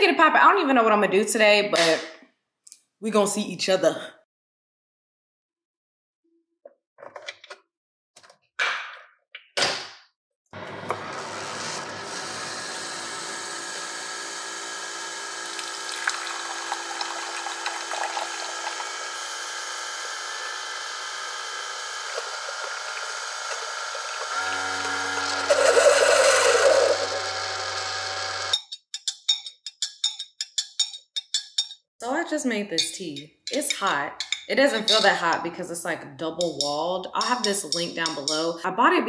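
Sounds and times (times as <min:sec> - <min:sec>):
coffee maker whirring: 0:10.6 - 0:28.6
liquid stream into mug: 0:15.3 - 0:28.5
spoon clinking against glass mug: 0:28.6 - 0:31.8, 0:32.8 - 0:35.2.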